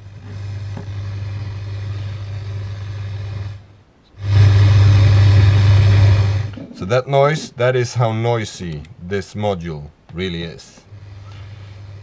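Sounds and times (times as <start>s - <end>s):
strong low hum: 0.0s - 9.1s
radio static hiss: 4.2s - 12.0s.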